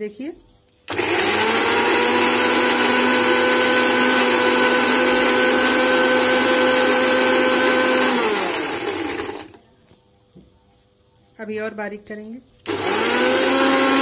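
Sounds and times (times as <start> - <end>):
electric mixer-grinder motor whining: 0.9 - 9.6, 12.6 - 14.0.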